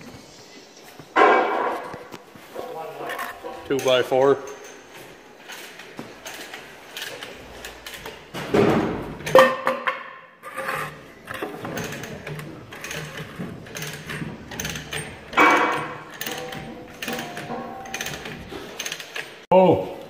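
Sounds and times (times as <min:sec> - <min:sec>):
wood block scraping and knocking: 0:08.3 - 0:19.2
loud ringing metal clank: 0:15.3 - 0:18.2.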